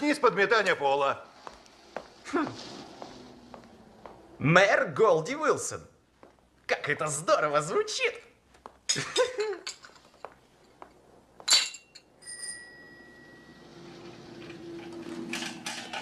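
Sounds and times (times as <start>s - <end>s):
china clink: 11.5s - 13.6s
bicycle bell ringing: 12.1s - 13.7s.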